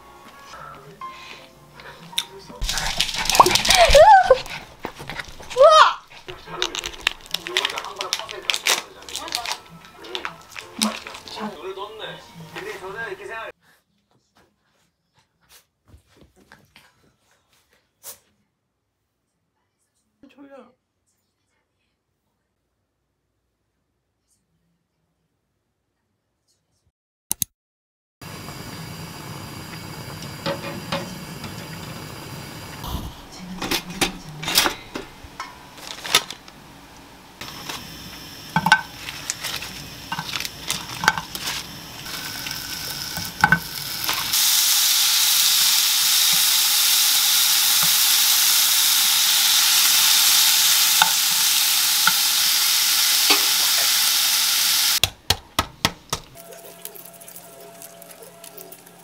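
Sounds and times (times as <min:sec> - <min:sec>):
bacon sizzling in frying pan: 0:02.6 - 0:13.0, 0:28.2 - 0:32.8, 0:34.9 - 0:55.1, 0:56.2 - 0:59.0
egg shell cracking taps: 0:06.1 - 0:08.8
cookware knocking and clattering: 0:33.5 - 0:36.4, 0:38.5 - 0:41.5, 0:43.2 - 0:44.3.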